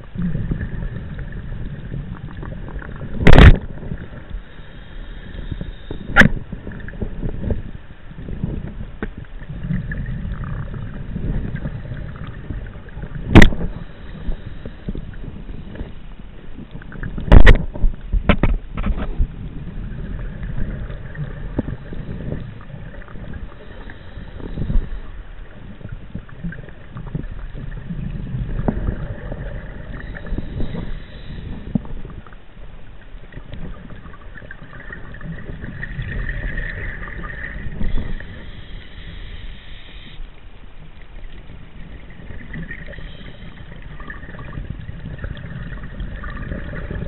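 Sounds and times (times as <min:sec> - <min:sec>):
exhaled bubbles rushing: 0:00.0 - 0:04.4, 0:09.4 - 0:15.9, 0:18.4 - 0:32.3, 0:33.3 - 0:39.2, 0:41.2 - 0:47.0
diver breathing through regulator: 0:04.3 - 0:06.7, 0:13.6 - 0:16.0, 0:23.3 - 0:25.3, 0:28.8 - 0:32.0, 0:36.7 - 0:40.2, 0:42.8 - 0:44.0.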